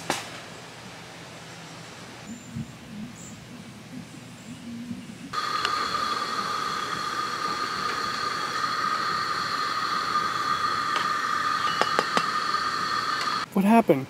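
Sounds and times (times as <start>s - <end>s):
gas stove burner hissing: 5.3s - 13.5s.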